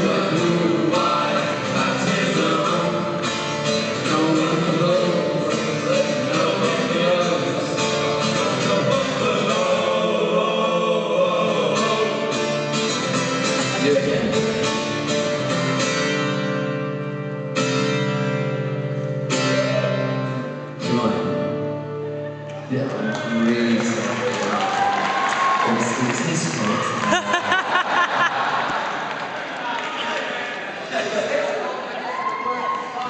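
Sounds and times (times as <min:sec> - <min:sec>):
singing: 0:00.0 - 0:03.3, 0:03.9 - 0:12.4
strummed guitar chords: 0:00.0 - 0:22.7.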